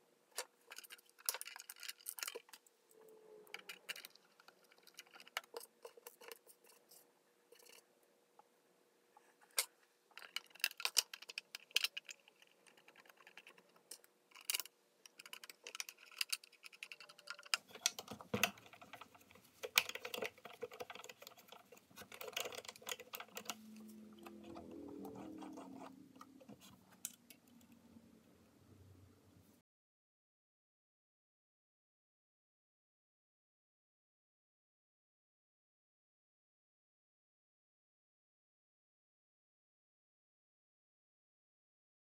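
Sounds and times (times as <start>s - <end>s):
plastic and metal parts clicking: 0.3s - 2.7s, 3.5s - 7.8s, 9.5s - 27.8s.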